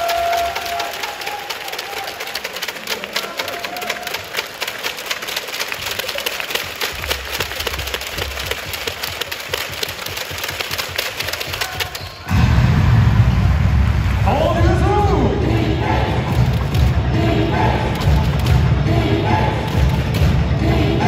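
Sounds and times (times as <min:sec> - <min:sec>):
crowd clapping rapidly: 0:00.0 - 0:12.2, 0:15.6 - 0:18.7, 0:19.4 - 0:20.4.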